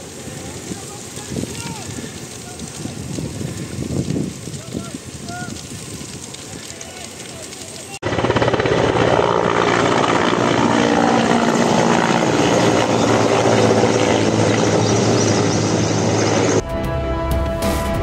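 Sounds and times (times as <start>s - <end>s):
helicopter flying overhead: 8.0s - 16.6s.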